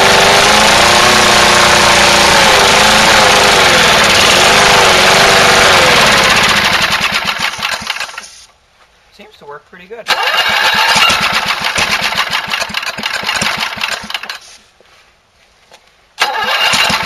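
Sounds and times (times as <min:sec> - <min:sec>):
lawn mower engine running: 0:00.0 - 0:08.4, 0:10.1 - 0:14.6, 0:16.2 - 0:17.0.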